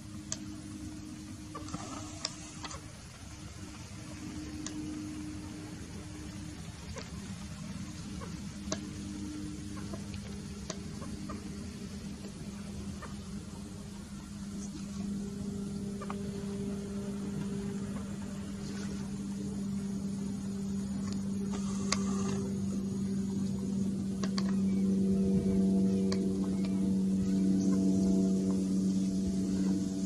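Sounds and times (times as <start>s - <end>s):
steady low hum: 0.0s - 30.0s
faint clicks: 1.5s - 2.8s, 24.2s - 24.6s, 26.1s - 26.8s.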